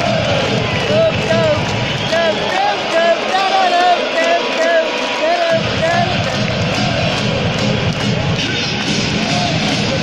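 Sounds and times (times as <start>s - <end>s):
crowd singing a chant: 0.0s - 7.4s.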